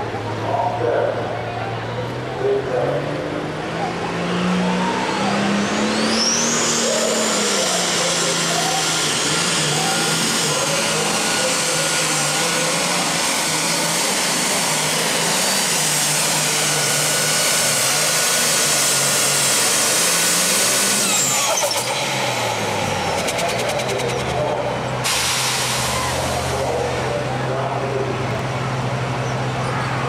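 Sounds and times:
tractor diesel engine whining: 0:00.0 - 0:30.0.

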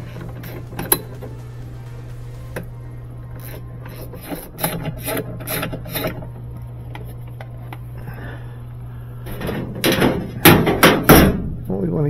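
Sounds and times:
hand tool rasping strokes: 0:03.4 - 0:06.3
knocks: 0:09.5 - 0:11.5.

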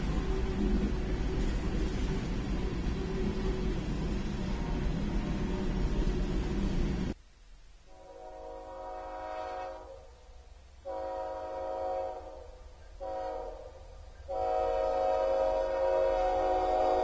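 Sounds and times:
locomotive air horn blasts: 0:07.9 - 0:10.1, 0:10.8 - 0:17.0.

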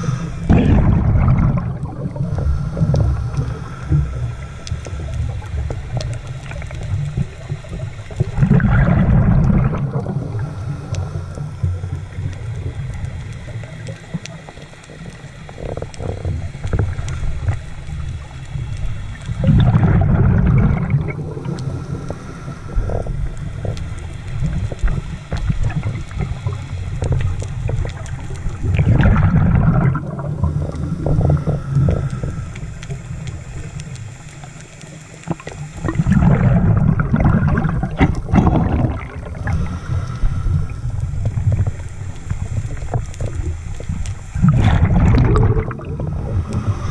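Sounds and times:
muffled low rumble: 0:00.0 - 0:13.4
underwater bubbles burbling: 0:00.0 - 0:46.9.

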